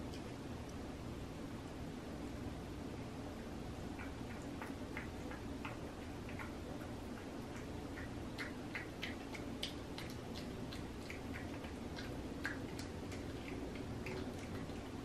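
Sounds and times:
low steady hum: 0.0s - 15.0s
cat chewing clicks: 3.9s - 15.0s.

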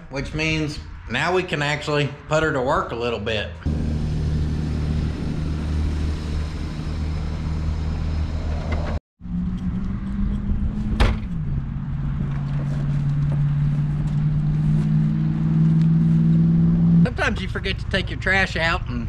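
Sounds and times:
car engine running: 3.7s - 9.0s.

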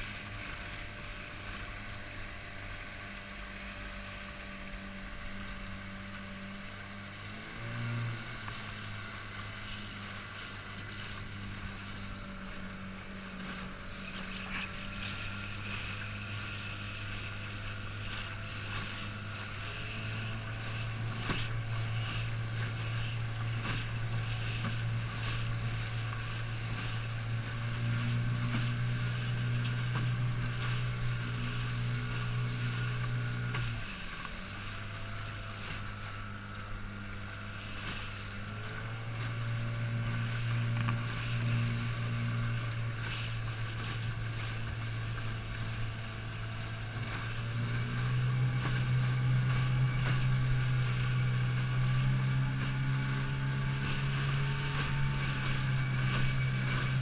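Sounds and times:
outboard motor running: 0.0s - 57.0s
water splashing along hull: 0.0s - 57.0s.

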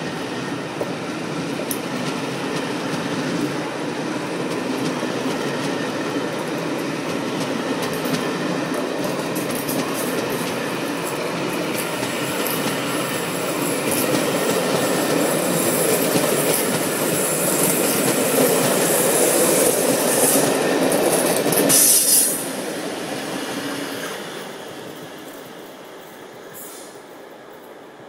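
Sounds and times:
train coaches rolling on rails: 0.0s - 28.0s.

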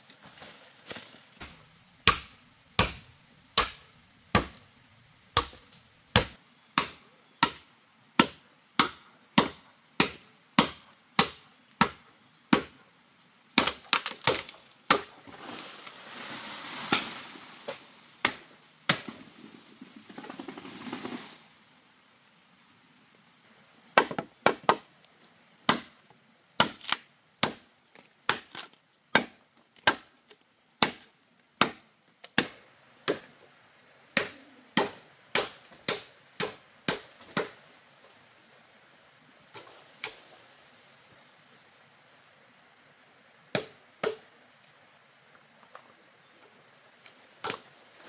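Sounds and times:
rustling leaves and stems: 0.0s - 6.4s, 13.8s - 21.5s
machete chopping bamboo: 1.4s - 4.7s, 5.3s - 7.6s, 8.2s - 12.7s, 13.6s - 15.1s, 18.2s - 19.1s, 25.7s - 25.9s, 26.6s - 27.6s, 28.3s - 30.0s, 30.8s - 33.2s, 34.2s - 37.6s, 43.5s - 44.2s.

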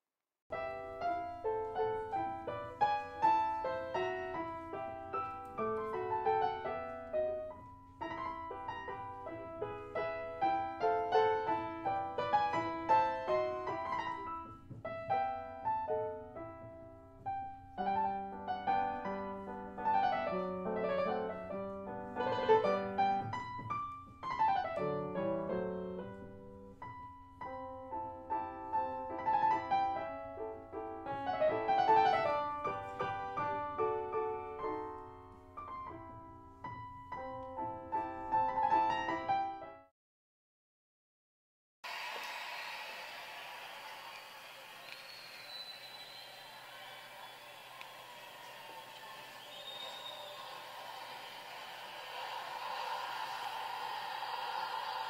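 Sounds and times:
piano music: 0.5s - 39.9s.

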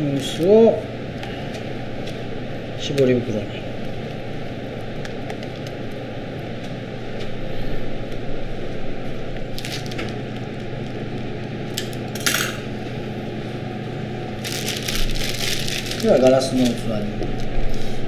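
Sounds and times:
low hum: 0.0s - 18.0s
plastic bag rustling: 9.5s - 10.2s, 14.4s - 18.0s.

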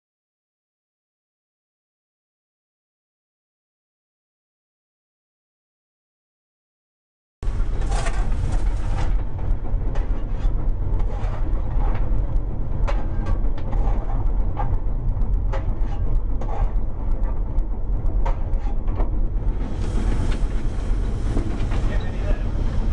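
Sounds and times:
steam locomotive rumble: 7.4s - 22.9s
shovel scraping and clanging: 7.8s - 9.1s.

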